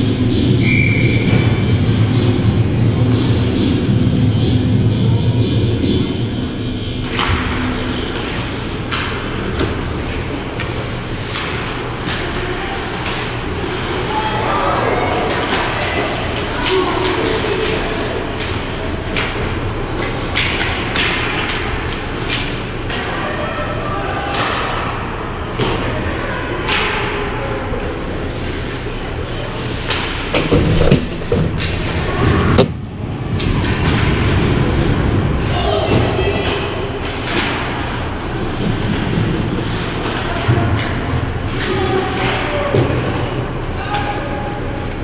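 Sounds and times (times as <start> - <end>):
arena noise: 0.0 - 45.0
low rink hum: 0.0 - 45.0
hockey sticks and puck clacking: 7.0 - 23.4, 26.7 - 27.2, 29.4 - 35.0, 35.9 - 45.0.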